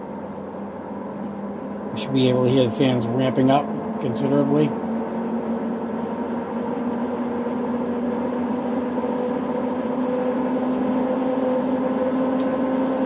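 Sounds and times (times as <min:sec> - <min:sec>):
cooling fans whirring: 0:00.0 - 0:13.0.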